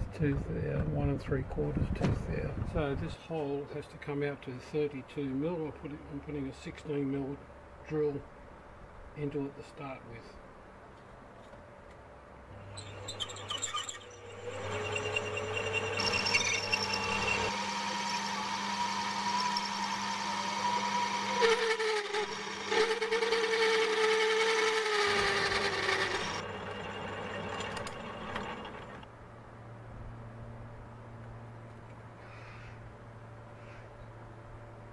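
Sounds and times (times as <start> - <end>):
lathe drilling metal: 12.6 - 29.0
wavering whine: 12.6 - 29.0
lathe winding down: 12.6 - 29.1.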